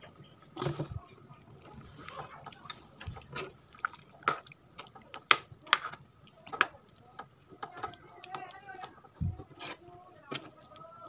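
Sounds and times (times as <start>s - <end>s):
wet squelching of gravy: 0.6s - 11.0s.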